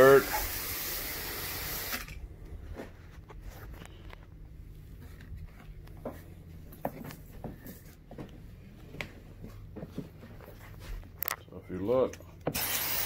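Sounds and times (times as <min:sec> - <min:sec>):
low steady hum: 0:00.2 - 0:12.5
light clicks and knocks of handling: 0:06.8 - 0:12.4.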